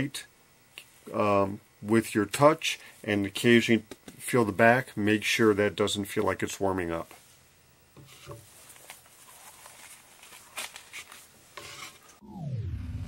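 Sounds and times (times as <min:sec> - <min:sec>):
handling sounds on workbench: 0:08.0 - 0:12.2
tone falling in pitch: 0:12.2 - 0:13.0.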